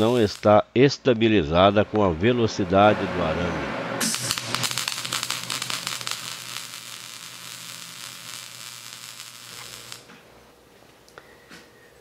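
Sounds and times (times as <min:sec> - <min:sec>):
welding arc crackling and sizzling: 0:00.0 - 0:00.6, 0:04.0 - 0:10.1.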